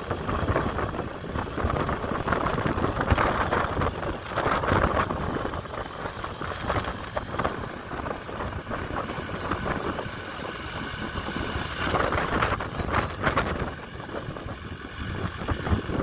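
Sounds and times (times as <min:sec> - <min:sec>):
tractor diesel engine under load: 0:00.0 - 0:16.0
wind gusts on microphone: 0:00.0 - 0:16.0.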